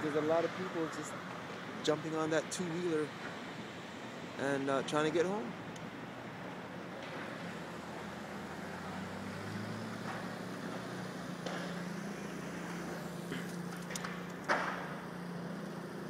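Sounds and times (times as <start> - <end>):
traffic engine hum: 0.0 - 16.0.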